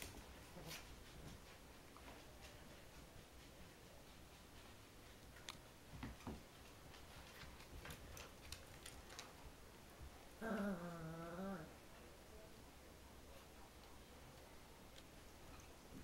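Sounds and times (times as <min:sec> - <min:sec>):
paws and claws clicking: 0:00.0 - 0:09.5
dog wavering vocal sound: 0:10.4 - 0:11.8.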